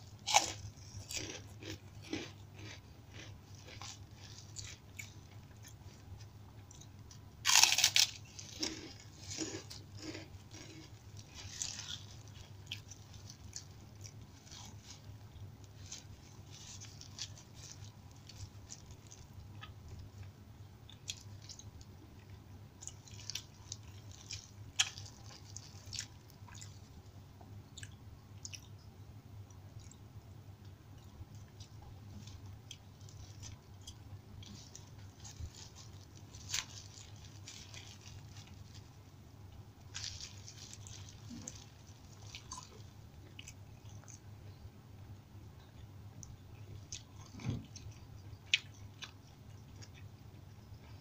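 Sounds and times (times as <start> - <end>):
crackers crunching: 0.1 - 26.9, 30.9 - 44.2
chewing sounds: 0.1 - 27.0, 27.8 - 28.8, 30.6 - 39.0, 39.8 - 44.6, 45.7 - 51.0.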